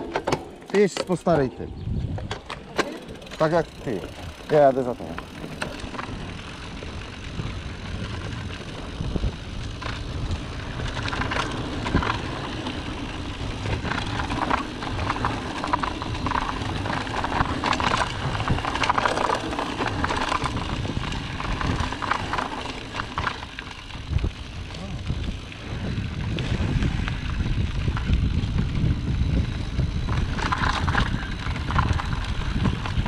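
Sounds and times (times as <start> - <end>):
bike rattling over bumps: 0.0 - 33.0
bike tyres rolling over dirt: 0.0 - 33.0
wind rumbling on microphone: 0.0 - 33.0.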